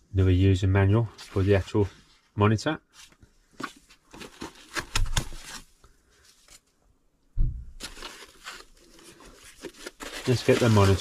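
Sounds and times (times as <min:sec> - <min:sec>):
rustling of foam and cardboard: 0:00.9 - 0:06.8, 0:07.8 - 0:11.0
soft thump: 0:07.4 - 0:07.8.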